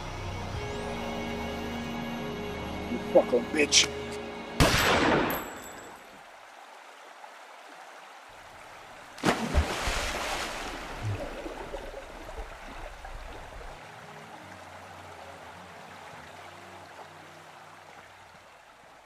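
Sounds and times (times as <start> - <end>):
water churning and bubbling: 8.8 - 19.0
body splashing into pool: 9.2 - 11.9.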